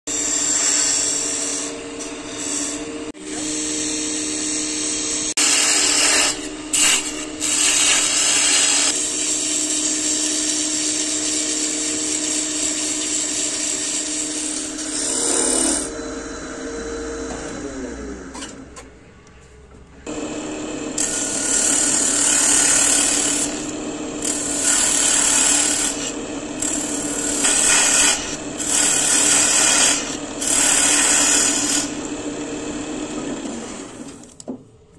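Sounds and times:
power tool cutting wood: 0.1 - 18.6, 20.1 - 34.3.

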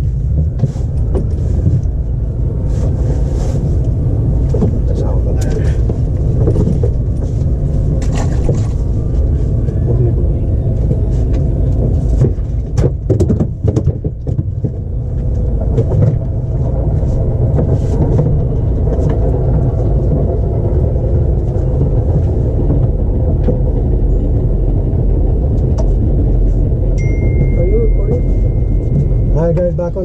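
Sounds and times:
steady low rumble: 0.0 - 30.0
knocks and clatters: 4.4 - 10.2, 10.8 - 24.6.

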